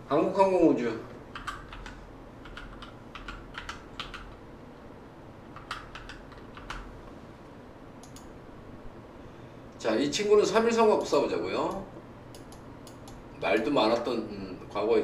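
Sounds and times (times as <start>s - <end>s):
keyboard keystrokes clicking: 1.3s - 4.4s, 5.5s - 6.9s, 8.0s - 8.3s.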